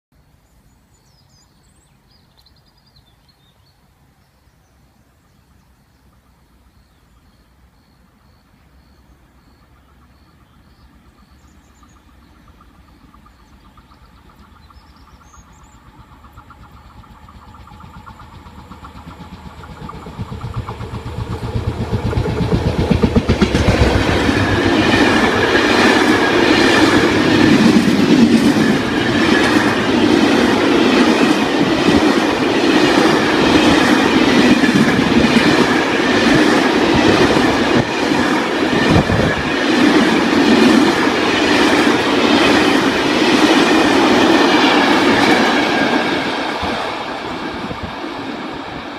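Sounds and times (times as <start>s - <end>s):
electric locomotive hum: 6.0s - 48.9s
freight train rumbling and clattering: 9.8s - 48.9s.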